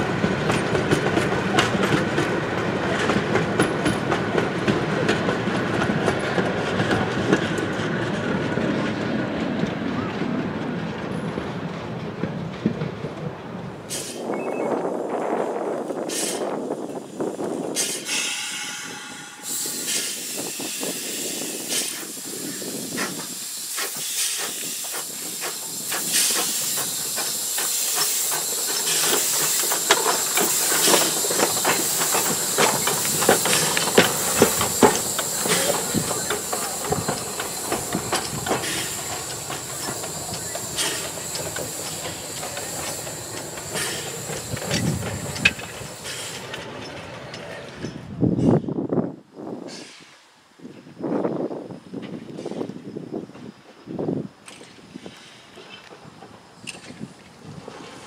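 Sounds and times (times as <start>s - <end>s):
steam locomotive hissing: 13.7s - 58.0s
short whistle-like tone: 14.2s - 14.8s
wheels clicking and clanking: 23.0s - 48.6s.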